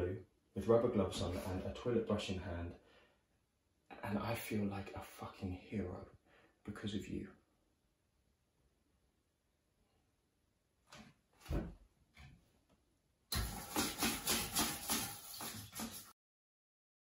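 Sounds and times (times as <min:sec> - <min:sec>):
toilet brush scrubbing: 0:13.3 - 0:16.2.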